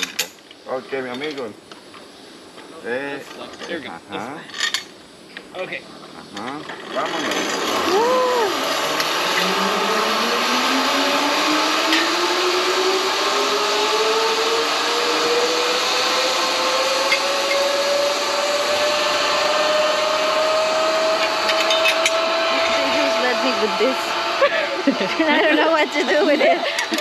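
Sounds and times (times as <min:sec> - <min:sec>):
zipline pulleys whining on cable: 0:06.8 - 0:27.0.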